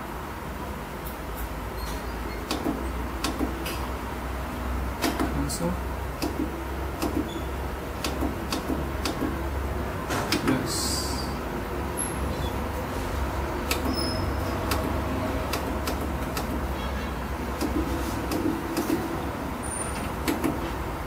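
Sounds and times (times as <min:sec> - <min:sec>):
push buttons clicking: 0:02.4 - 0:03.6, 0:06.2 - 0:07.4, 0:08.0 - 0:09.4, 0:13.6 - 0:14.0, 0:14.6 - 0:16.7, 0:17.6 - 0:19.1
steady low hum: 0:02.4 - 0:21.0.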